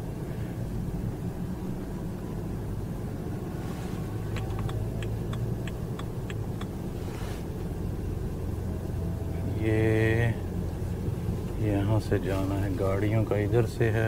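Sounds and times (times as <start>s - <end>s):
car engine and road rumble: 0.0s - 14.0s
light clicks: 4.3s - 6.7s.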